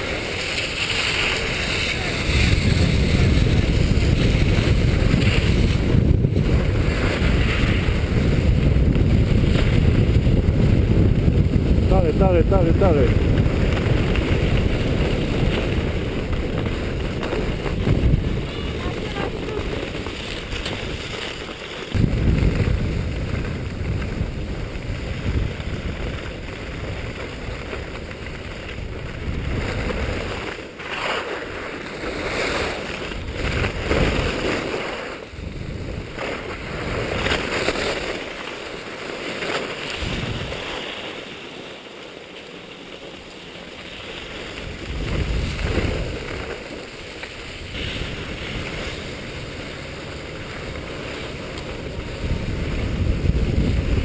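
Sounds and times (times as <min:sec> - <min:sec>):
wind buffeting microphone: 0:00.0 - 0:30.6, 0:31.4 - 0:38.9, 0:39.8 - 0:41.1, 0:43.9 - 0:54.0
skis scraping over snow: 0:00.0 - 0:54.0.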